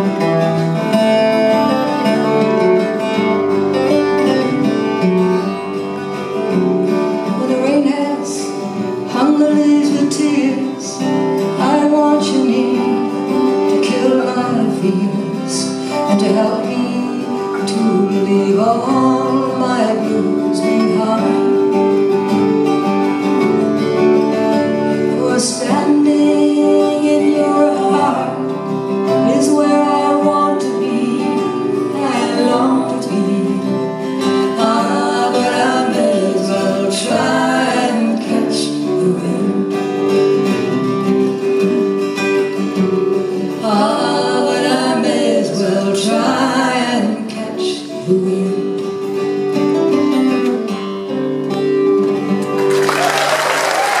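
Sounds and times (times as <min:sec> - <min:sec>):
strummed acoustic guitars: 0:00.0 - 0:54.0
women singing: 0:07.3 - 0:21.7, 0:25.0 - 0:39.9, 0:43.5 - 0:48.8
audience applause: 0:52.4 - 0:54.0.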